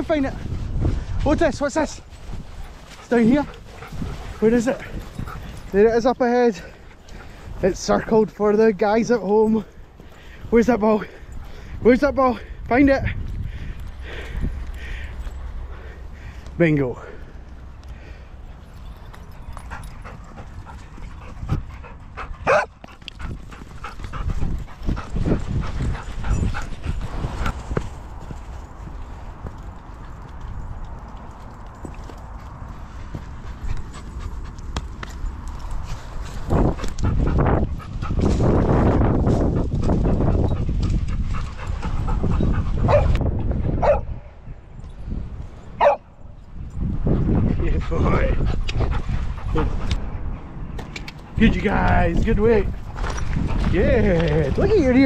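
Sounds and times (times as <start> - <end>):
dogs panting: 2.0 - 43.3, 45.8 - 55.0
dog barking high-pitched: 22.4 - 22.7, 42.9 - 43.1, 43.8 - 44.1.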